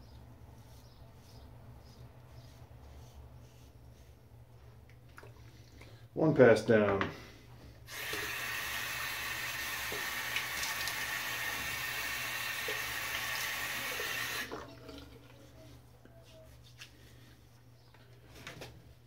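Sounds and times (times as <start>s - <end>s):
sink faucet running: 7.9s - 14.6s.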